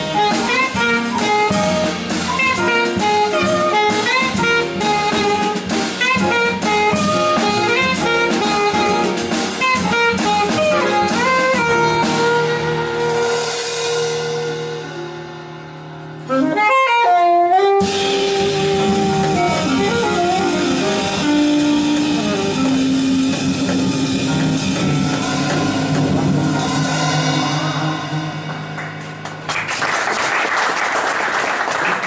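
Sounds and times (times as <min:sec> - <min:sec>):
saxophone rising run: 0:00.0 - 0:13.4, 0:16.3 - 0:29.0
jazz band playing: 0:00.0 - 0:30.4
audience applause: 0:28.8 - 0:32.0.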